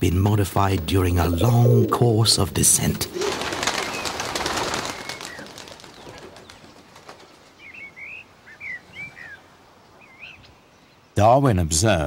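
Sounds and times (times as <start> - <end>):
pigeon wings clattering: 2.7 - 7.5.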